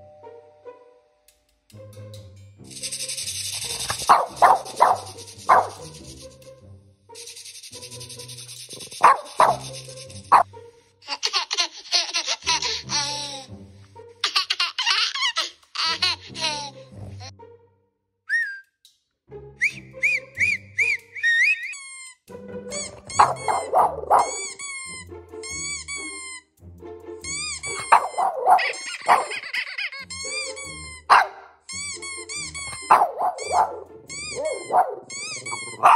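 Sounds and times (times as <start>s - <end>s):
recorded baby laughing: 2.7s - 6.3s, 7.2s - 13.5s, 14.2s - 17.3s, 20.8s - 26.2s, 27.3s - 31.0s, 31.8s - 35.9s
dog barking: 3.6s - 6.0s, 8.8s - 10.4s, 23.1s - 24.6s, 27.8s - 29.4s, 31.1s - 31.5s, 32.8s - 35.9s
dog whining: 21.4s - 24.6s, 27.6s - 29.4s, 32.5s - 35.9s.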